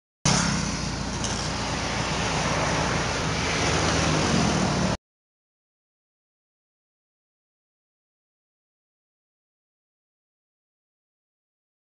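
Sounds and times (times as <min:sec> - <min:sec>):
low engine hum: 0:00.3 - 0:05.0
tyres and wind rushing: 0:00.3 - 0:05.0.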